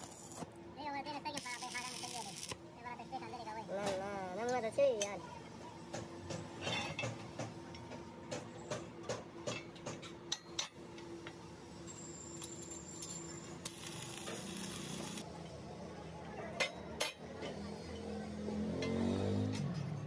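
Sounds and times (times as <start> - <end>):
welding arc crackling: 0.0 - 0.5, 1.3 - 2.6, 13.6 - 15.2.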